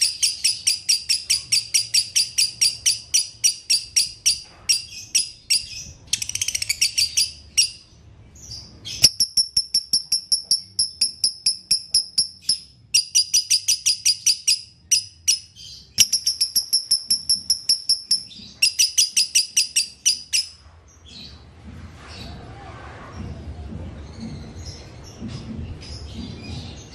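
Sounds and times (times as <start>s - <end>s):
lovebird chirping: 0.0s - 20.6s.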